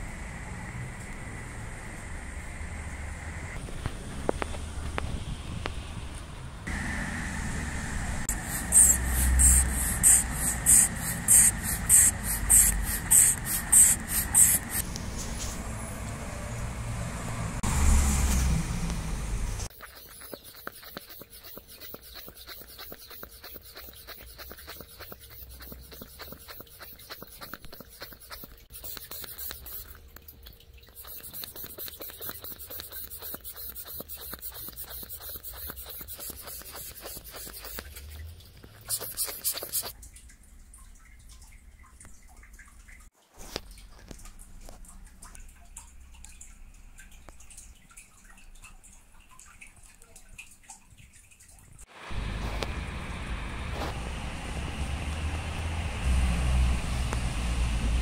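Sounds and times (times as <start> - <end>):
hand pump puffs of air: 8.3 - 15.4, 19.7 - 40.0.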